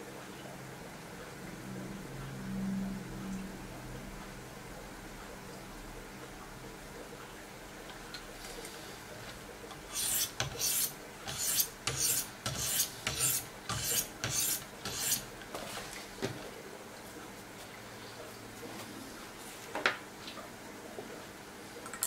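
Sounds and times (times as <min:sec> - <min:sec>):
sharpening stones rasping on blade: 0:09.9 - 0:15.3.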